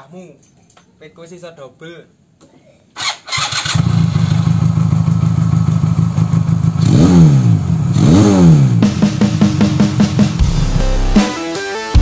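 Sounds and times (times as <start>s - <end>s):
motorcycle engine starting and idling: 3.0s - 10.4s
motorcycle engine revving: 3.3s - 11.2s.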